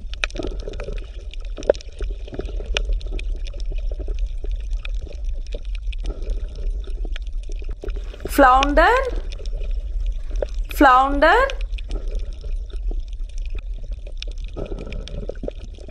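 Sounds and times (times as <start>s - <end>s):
water bubbling and gurgling: 0.0s - 8.3s, 11.7s - 15.9s.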